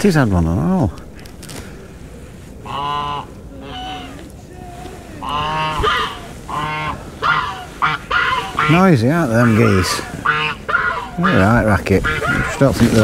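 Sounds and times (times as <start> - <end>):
geese honking: 1.0 - 4.4, 5.1 - 13.0.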